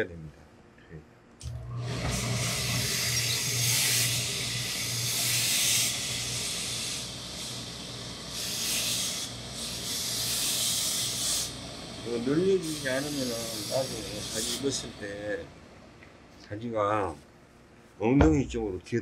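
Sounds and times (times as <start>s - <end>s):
steady low hum: 0.0s - 19.0s
steam iron hissing: 1.8s - 15.4s.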